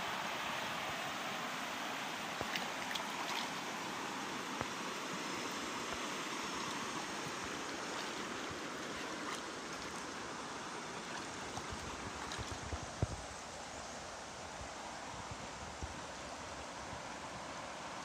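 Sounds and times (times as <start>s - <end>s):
stream water rushing over rocks: 0.0s - 18.0s.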